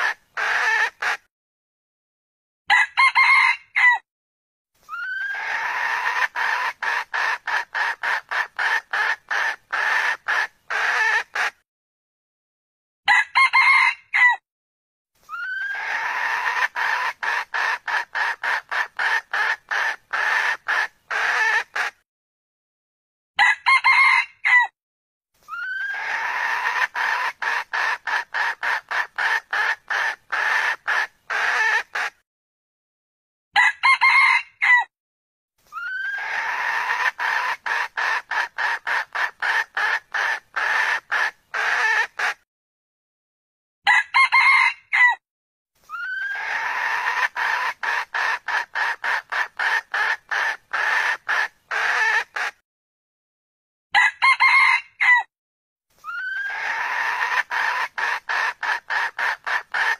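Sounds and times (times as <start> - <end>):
junglefowl crowing: 0.0 - 1.3, 2.7 - 4.0, 4.9 - 11.6, 13.1 - 14.4, 15.3 - 22.0, 23.4 - 24.7, 25.5 - 32.2, 33.6 - 34.9, 35.8 - 42.4, 43.9 - 45.2, 45.9 - 52.6, 54.0 - 55.3, 56.0 - 59.9.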